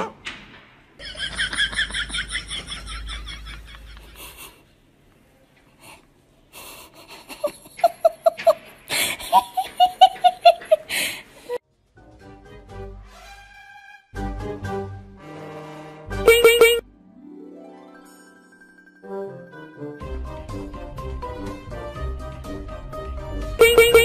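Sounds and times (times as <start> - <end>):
person giggling: 6.6 - 11.6
rapid ha-ha-ha laughing: 6.8 - 11.0.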